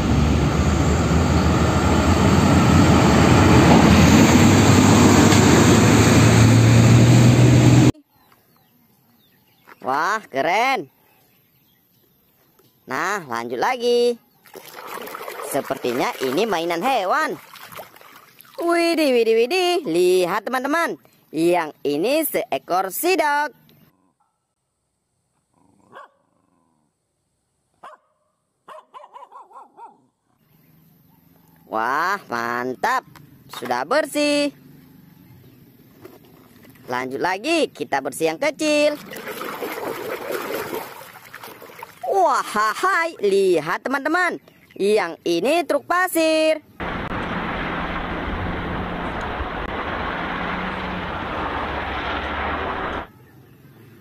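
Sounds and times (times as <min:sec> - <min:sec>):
diesel truck engine running: 0:00.0 - 0:07.9, 0:46.8 - 0:53.1
dog barking: 0:24.1 - 0:24.6, 0:25.8 - 0:26.6, 0:27.8 - 0:30.2.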